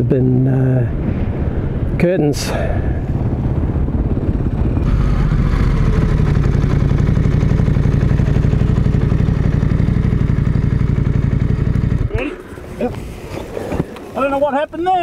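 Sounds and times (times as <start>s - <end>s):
motorcycle engine at low revs: 3.0s - 13.9s.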